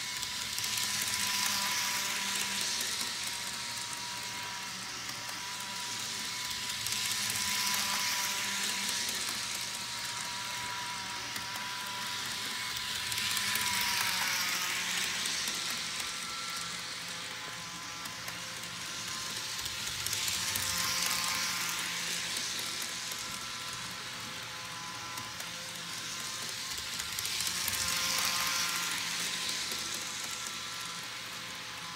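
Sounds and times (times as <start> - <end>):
model train motor whine: 0.0 - 31.9.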